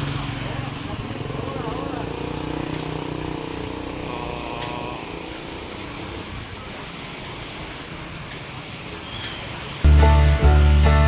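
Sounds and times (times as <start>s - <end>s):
passing traffic: 0.0s - 11.0s
engine hum: 9.8s - 11.0s.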